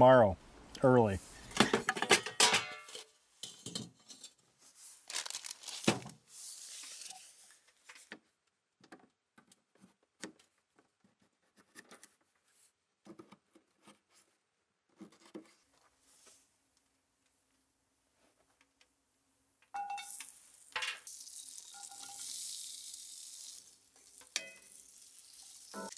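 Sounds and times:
plastic bag crinkling: 5.0 - 6.2.

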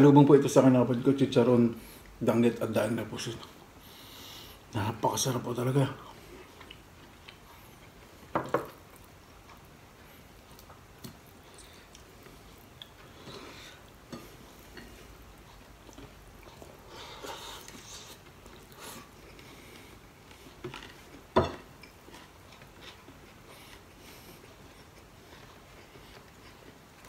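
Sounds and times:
person chewing: 6.2 - 27.0.

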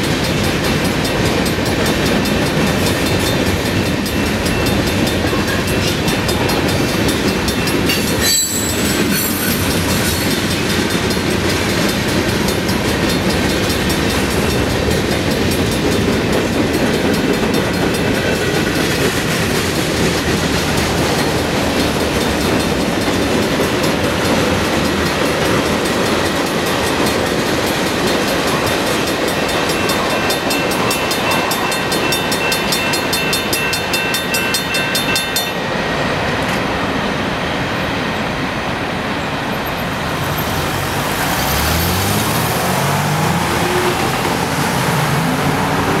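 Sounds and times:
crossing bell ringing: 0.0 - 36.1, 39.9 - 46.0
train wheels clattering on rails: 0.0 - 46.0
cars accelerating: 40.1 - 46.0.

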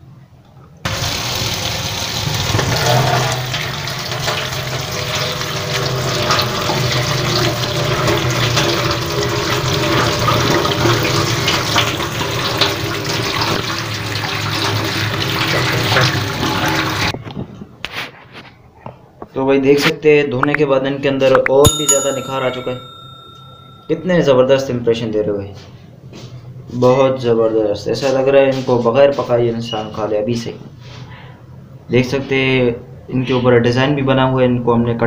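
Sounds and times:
tap water running: 0.9 - 17.1.

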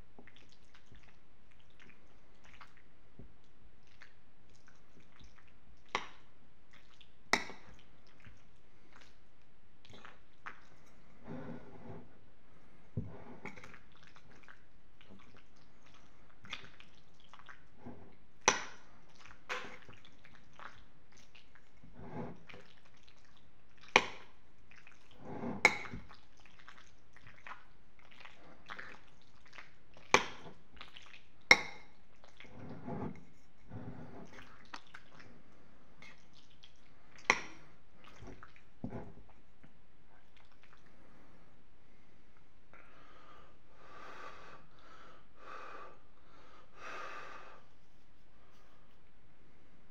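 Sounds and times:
wet chewing sounds: 3.8 - 9.2, 13.6 - 17.7, 18.6 - 21.8, 26.1 - 31.4.

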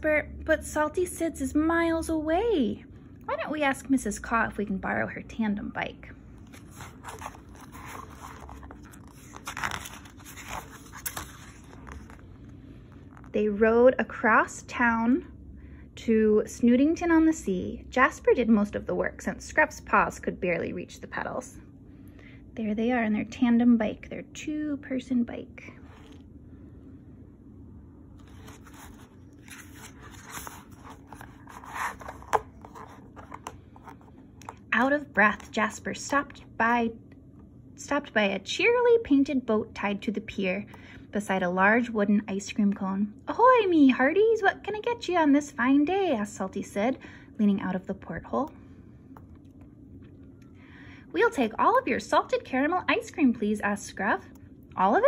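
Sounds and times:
book page rustling: 6.4 - 13.4, 25.8 - 26.2, 28.2 - 35.6.

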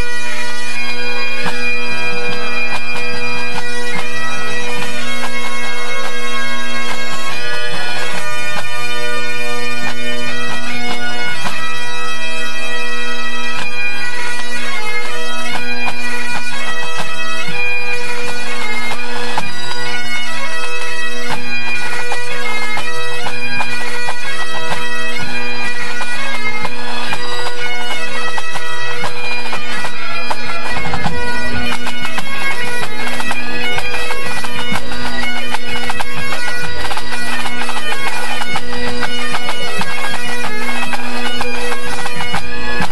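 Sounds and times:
bagpipes playing over drones: 0.0 - 42.9
drums beating: 28.3 - 42.9.

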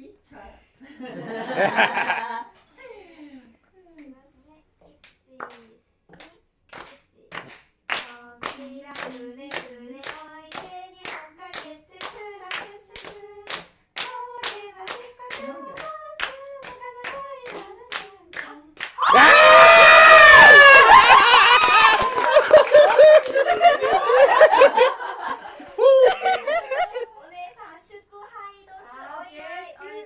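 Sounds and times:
woman singing: 3.9 - 19.0, 27.1 - 30.0
people shrieking: 19.0 - 23.3.

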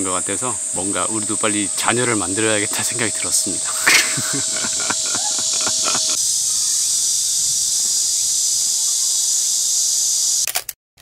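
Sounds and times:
insects buzzing: 0.0 - 10.5
man laughing: 3.5 - 6.2.

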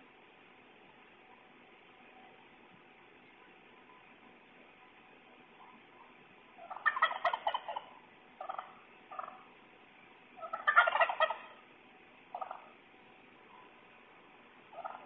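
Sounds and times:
turkey gobbling: 5.6 - 9.5, 10.4 - 11.6, 12.3 - 12.8, 14.7 - 15.0
short turkey calls: 6.6 - 9.5, 10.4 - 11.6, 12.3 - 12.8, 14.7 - 15.0.

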